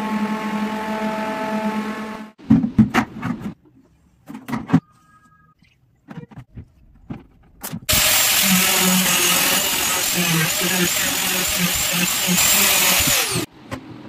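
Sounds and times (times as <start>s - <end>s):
angle grinder cutting plastic: 7.9s - 13.5s.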